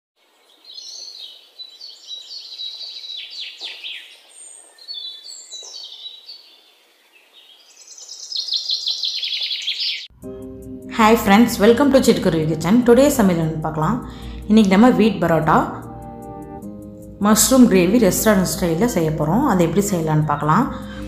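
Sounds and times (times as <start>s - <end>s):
robin singing: 0.2s - 10.1s.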